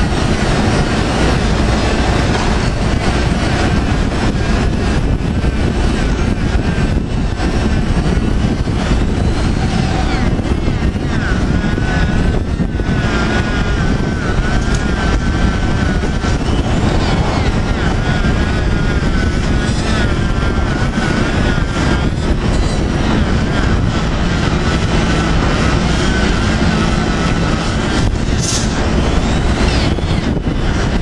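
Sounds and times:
grinder motor whining: 0.0s - 31.0s.

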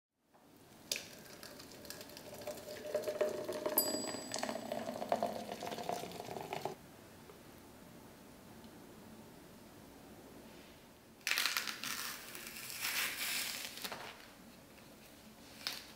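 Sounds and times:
thick shake pouring into glass: 1.1s - 6.8s
glass clink: 2.8s - 6.8s.

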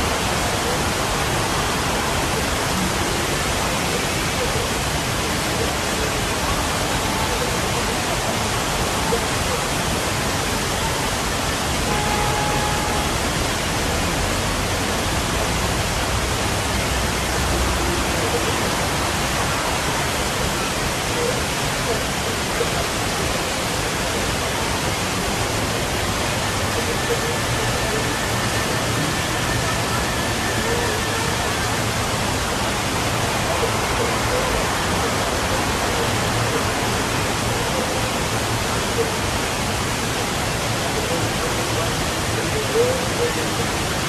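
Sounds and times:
waterfall rushing: 0.0s - 44.0s.

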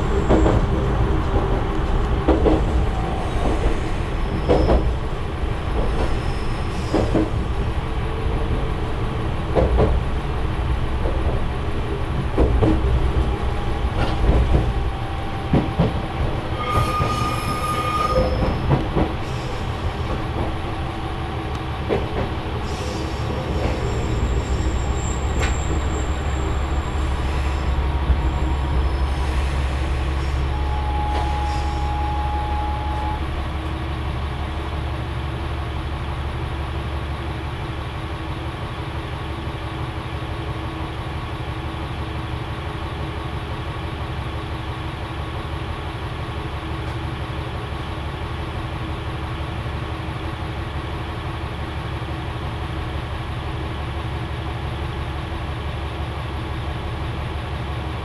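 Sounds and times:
railcar engine and wheels rumbling: 0.0s - 58.0s
wheel squeal: 16.6s - 18.8s, 23.5s - 33.2s.

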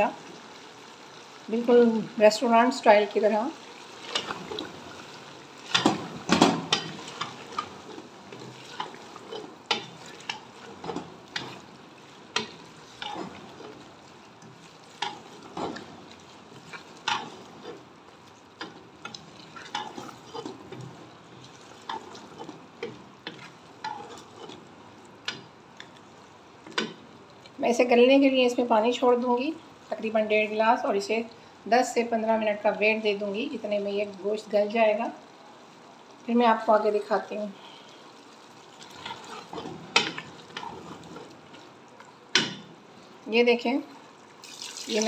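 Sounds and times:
meat and greens sizzling in oil: 0.0s - 37.2s, 37.8s - 43.3s, 44.0s - 45.0s
wooden spatula scraping metal pot: 5.6s - 13.9s, 18.6s - 24.7s, 38.8s - 41.6s.

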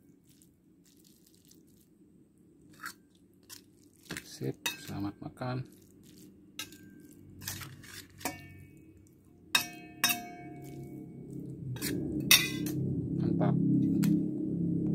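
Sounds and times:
metal spoon clinking on plate: 4.6s - 5.0s, 6.6s - 7.6s, 8.2s - 8.8s, 9.6s - 10.8s, 11.8s - 12.8s.

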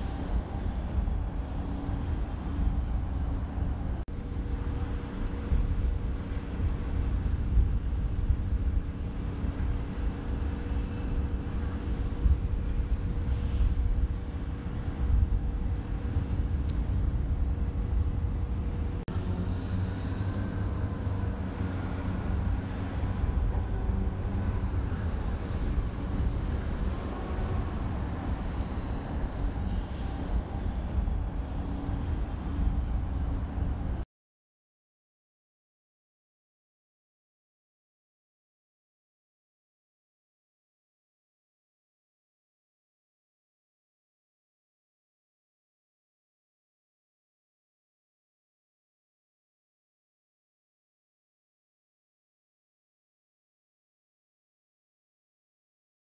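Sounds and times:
low machinery rumble: 0.0s - 34.0s
machinery hum: 0.0s - 34.0s.

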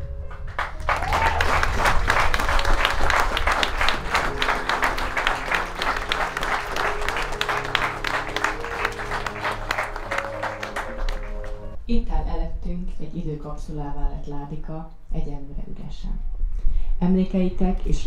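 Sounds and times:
crowd applauding: 0.3s - 11.8s
music with held notes: 1.8s - 11.8s.

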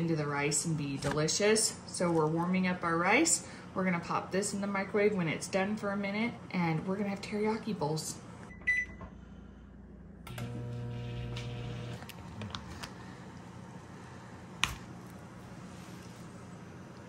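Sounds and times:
microwave humming: 8.4s - 15.6s
microwave keypad beep: 8.5s - 9.0s.

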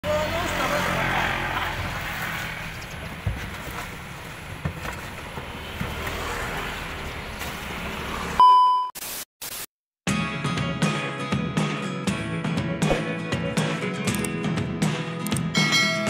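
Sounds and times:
test-tone beep: 8.4s - 9.0s.

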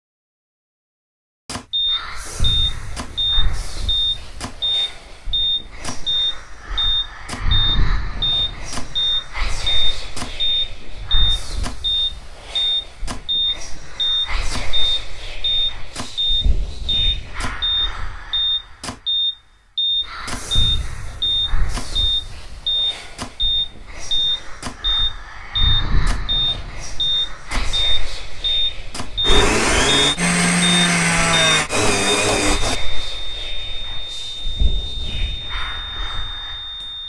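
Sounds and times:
noisy pulsing background: 25.6s - 36.7s.

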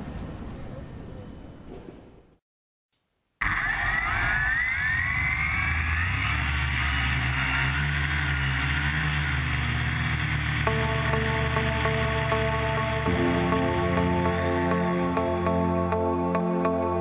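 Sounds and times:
quadcopter motors whining: 3.4s - 14.2s
music: 10.7s - 17.0s.

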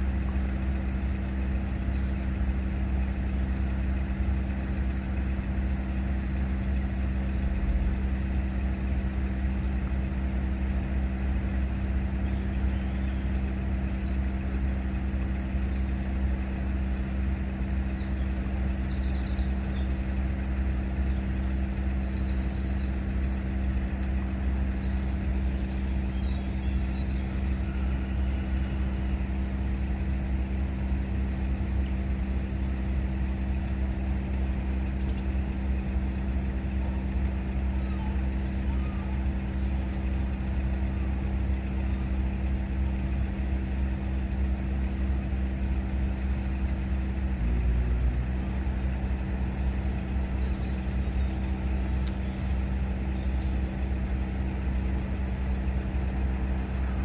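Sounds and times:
car idling: 0.0s - 57.0s
constant low hum: 0.0s - 57.0s
small bird chirping: 12.2s - 14.3s, 17.5s - 29.3s, 34.0s - 36.0s, 36.6s - 41.1s, 49.6s - 54.5s.

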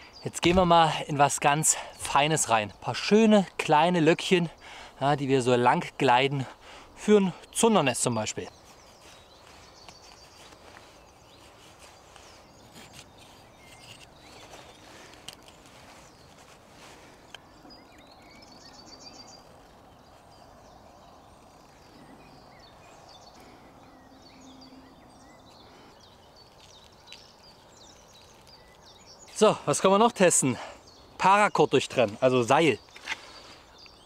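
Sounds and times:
birds chirping: 0.0s - 34.0s
knife shaving wooden stick: 8.9s - 17.1s, 28.0s - 28.8s.

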